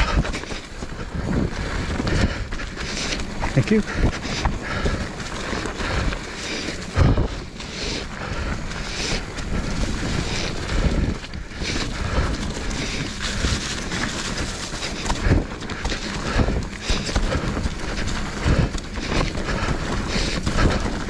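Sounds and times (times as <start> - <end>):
bike tyres rumbling on rock: 0.0 - 21.0
wind rushing over microphone: 0.0 - 21.0.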